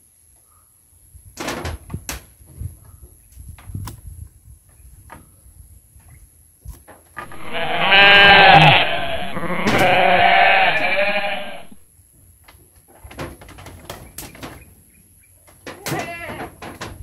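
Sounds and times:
goat bleating: 0:07.2 - 0:11.8.

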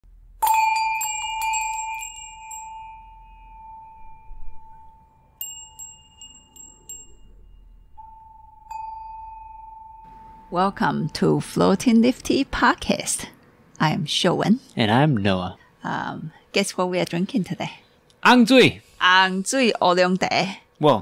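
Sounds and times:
light high tinkles: 0:00.4 - 0:10.6
struck chime ringing: 0:00.4 - 0:11.4.

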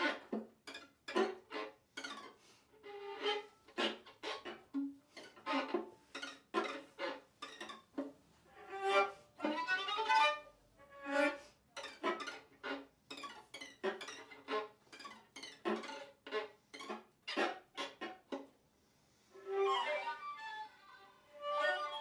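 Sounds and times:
violin and viola bowed notes: 0:00.0 - 0:18.1, 0:19.4 - 0:22.0.

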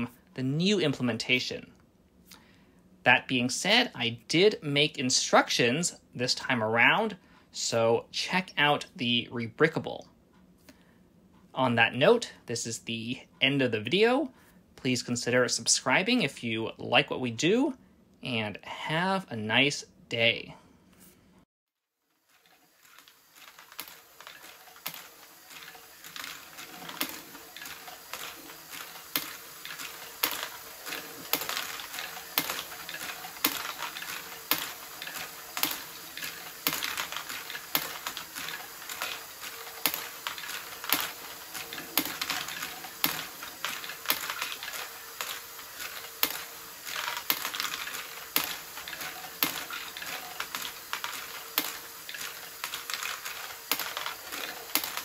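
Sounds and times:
plastic balls clicking and clattering: 0:22.2 - 0:55.0
faint motor hum: 0:22.3 - 0:55.0.

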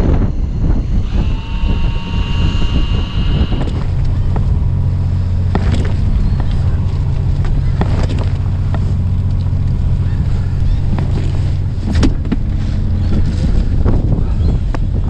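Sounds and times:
boat engine humming: 0:00.0 - 0:15.0
clicks and knocks of gear: 0:07.4 - 0:09.5.

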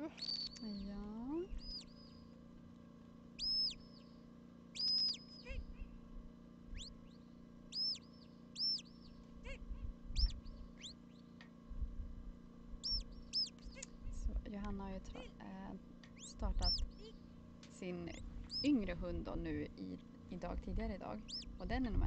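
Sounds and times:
shepherd's high whistles: 0:04.8 - 0:05.3.

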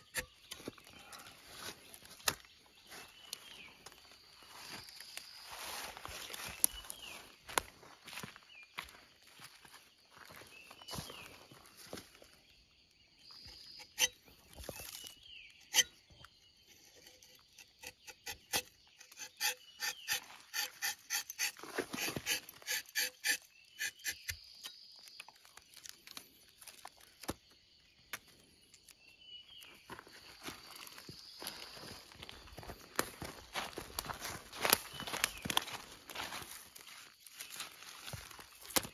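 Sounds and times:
knife scraping tree bark: 0:00.0 - 0:00.6, 0:13.4 - 0:24.8.

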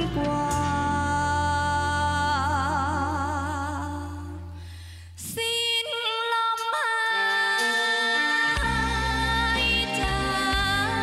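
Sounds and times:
band playing: 0:00.0 - 0:01.9, 0:08.6 - 0:11.0
woman singing a ballad: 0:00.0 - 0:04.6, 0:05.2 - 0:11.0.

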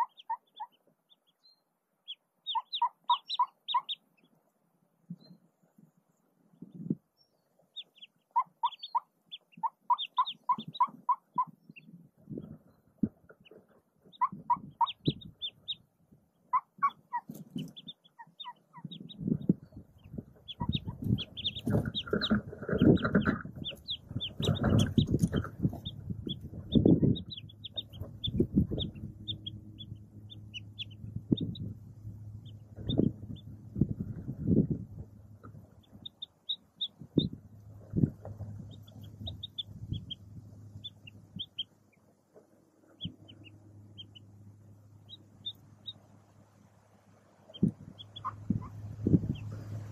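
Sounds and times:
ducklings peeping: 0:00.0 - 0:49.9
faint low hum: 0:00.0 - 0:49.9
duck clucking softly: 0:02.4 - 0:04.0, 0:07.8 - 0:11.6, 0:13.3 - 0:15.8, 0:47.5 - 0:49.8.

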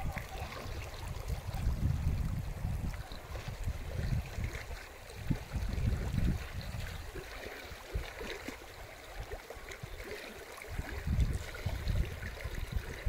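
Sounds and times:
low rumbling gusts: 0:00.0 - 0:04.5
flood water rushing: 0:00.0 - 0:13.0.

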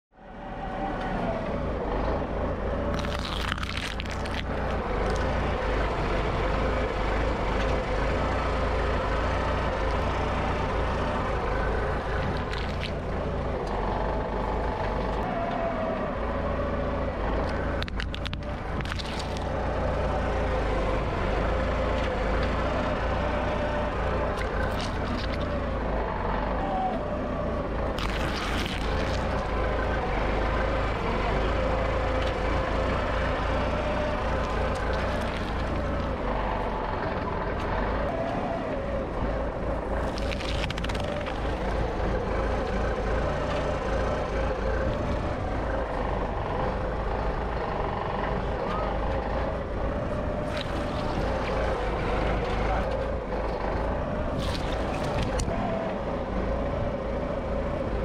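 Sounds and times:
loader engine rumbling: 0:00.1 - 0:58.0
tyres crunching vegetables: 0:02.9 - 0:05.3, 0:12.1 - 0:13.8, 0:17.5 - 0:19.6, 0:24.3 - 0:25.6, 0:27.9 - 0:29.5, 0:33.7 - 0:36.2, 0:39.8 - 0:42.1, 0:50.2 - 0:53.0, 0:54.2 - 0:55.5.

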